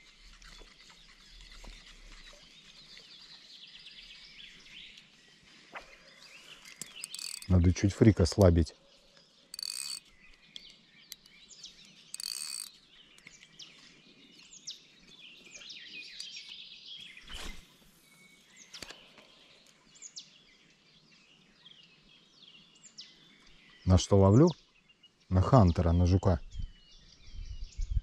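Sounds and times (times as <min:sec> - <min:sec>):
songbirds chirping: 0:00.0 - 0:28.0.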